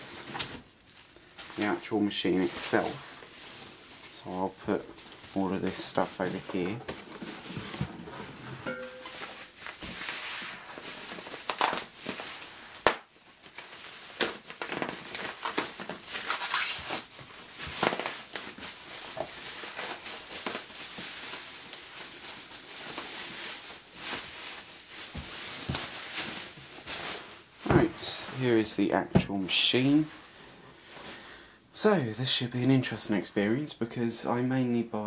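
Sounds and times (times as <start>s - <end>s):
bubble wrap crinkling: 0.0s - 28.8s
bubble wrap snaps: 10.8s - 27.0s.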